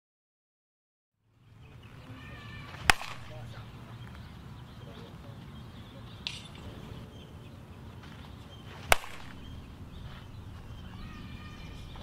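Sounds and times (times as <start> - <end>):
steady low background noise: 1.2 - 12.0
bat hitting softball: 2.6 - 3.8, 6.2 - 6.7, 8.8 - 10.6.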